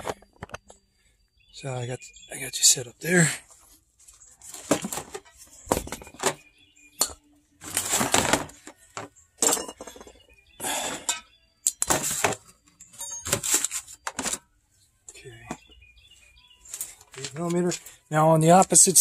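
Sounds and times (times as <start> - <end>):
metal tools clinking: 9.4 - 14.4.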